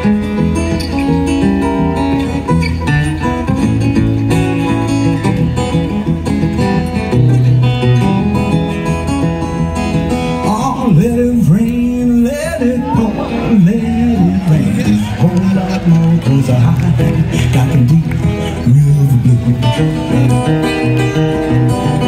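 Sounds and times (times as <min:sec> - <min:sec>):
acoustic guitar picking: 0:00.0 - 0:22.0
man singing: 0:10.4 - 0:22.0.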